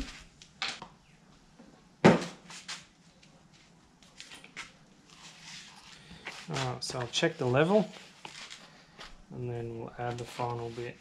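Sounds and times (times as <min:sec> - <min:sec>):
soft rustling: 0:02.5 - 0:09.3.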